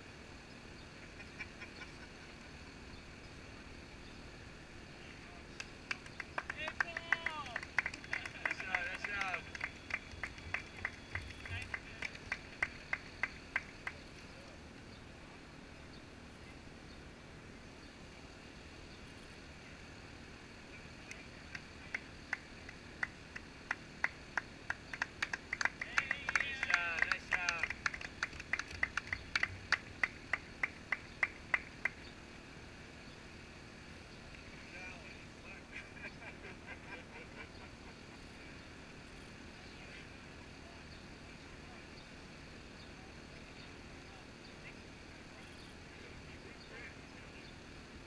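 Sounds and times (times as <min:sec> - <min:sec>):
faint outdoor background: 0:00.0 - 0:48.0
hand clapping: 0:05.6 - 0:14.0, 0:21.0 - 0:32.0.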